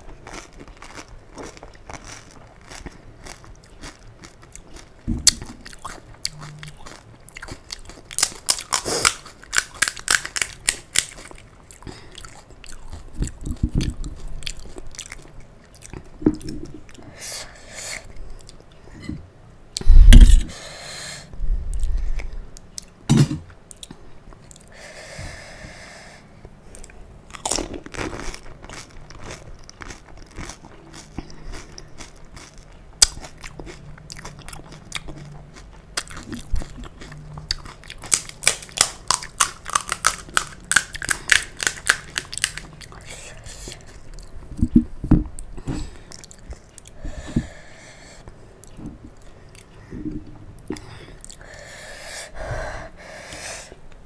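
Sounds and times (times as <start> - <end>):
crunching and chewing crisp shells: 0.0 - 17.1, 26.5 - 44.4.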